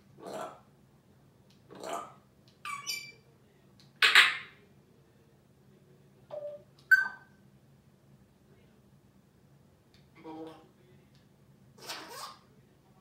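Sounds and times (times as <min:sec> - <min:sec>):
parrot harsh squawk: 0:01.7 - 0:03.2, 0:11.8 - 0:12.4
parrot whistled squeaks: 0:02.7 - 0:03.2, 0:06.4 - 0:07.3.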